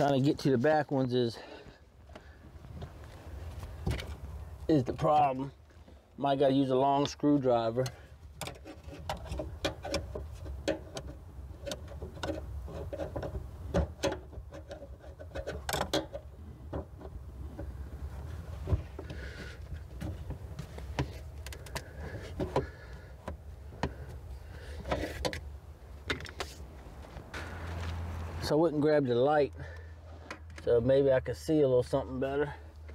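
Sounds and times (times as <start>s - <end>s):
hand tools clicking and knocking: 7.8s - 17.1s.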